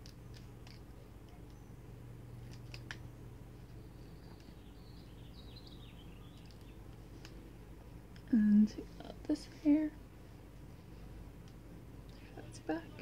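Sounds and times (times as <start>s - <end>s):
hair rustling and clicks: 0.0s - 1.6s, 2.3s - 3.1s, 6.3s - 8.3s
steady low hum: 0.0s - 13.0s
faint high chirping: 1.3s - 2.0s, 3.0s - 6.9s.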